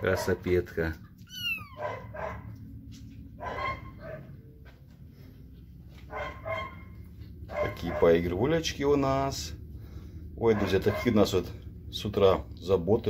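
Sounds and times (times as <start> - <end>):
dog barking: 0.0 - 0.5, 1.7 - 2.6, 3.3 - 4.4, 6.0 - 8.3, 10.5 - 11.3.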